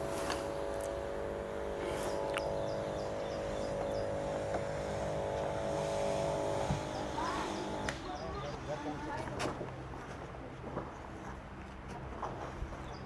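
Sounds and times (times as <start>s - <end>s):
motor running steadily: 0.0s - 9.8s.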